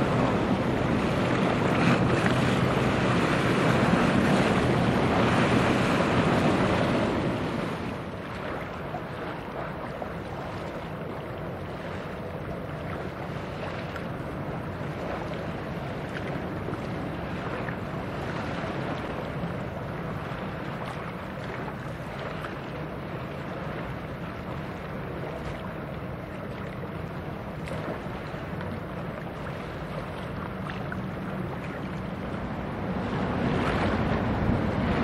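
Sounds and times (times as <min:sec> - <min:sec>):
wind noise on microphone: 0:00.0 - 0:11.1, 0:32.1 - 0:35.0
ship engine droning: 0:00.0 - 0:35.0.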